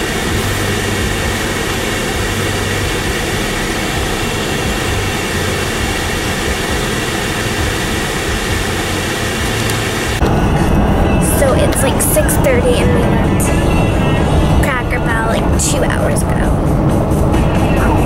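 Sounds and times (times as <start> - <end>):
car cabin rushing noise: 0.0 - 11.6
low hum: 0.0 - 18.0.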